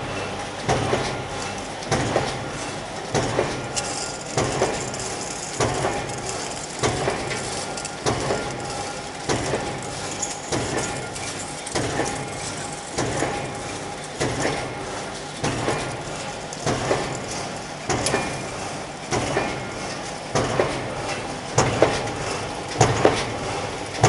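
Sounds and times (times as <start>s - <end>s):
machinery running hum: 0.0s - 24.0s
press stamping heavy knocks: 1.9s - 21.0s, 21.6s - 23.5s.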